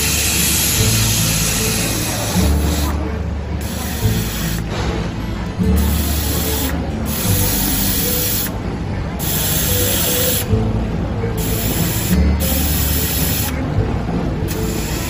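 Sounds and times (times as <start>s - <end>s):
gas hissing from nozzle: 0.0s - 3.0s, 3.6s - 4.6s, 5.8s - 8.5s, 9.2s - 10.5s, 11.4s - 13.6s.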